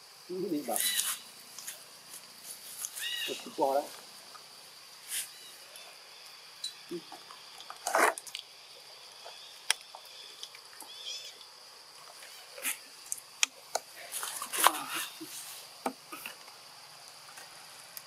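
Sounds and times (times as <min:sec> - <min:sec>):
animal calls and chirps: 0:00.3 - 0:04.0, 0:05.0 - 0:11.5, 0:14.0 - 0:16.3.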